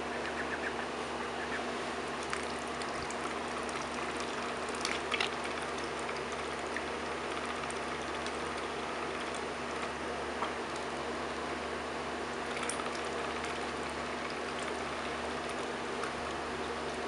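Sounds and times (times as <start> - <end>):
faint low hum: 0.0 - 11.6
small water splashes: 2.1 - 10.9, 12.3 - 17.0.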